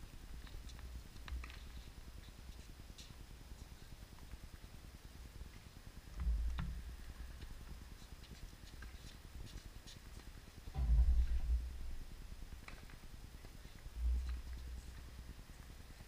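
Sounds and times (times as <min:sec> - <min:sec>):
short low rumbles: 0:10.8 - 0:12.6.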